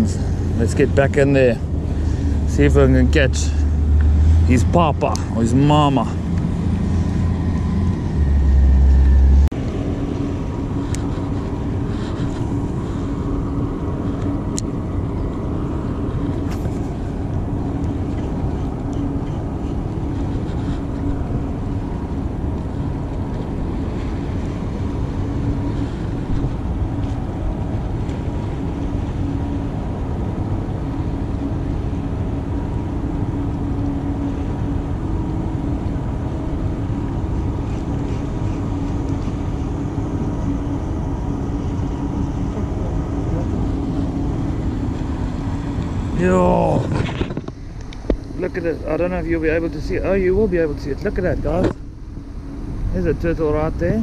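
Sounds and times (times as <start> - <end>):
engine drone: 0.0 - 54.0
wind rumbling on microphone: 0.0 - 54.0.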